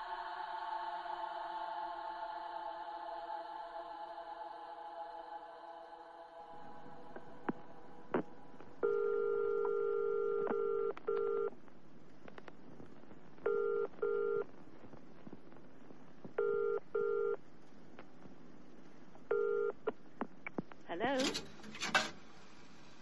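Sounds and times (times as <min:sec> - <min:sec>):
dial tone: 0:08.8 - 0:11.5, 0:13.5 - 0:14.5, 0:16.4 - 0:17.4, 0:19.3 - 0:19.8.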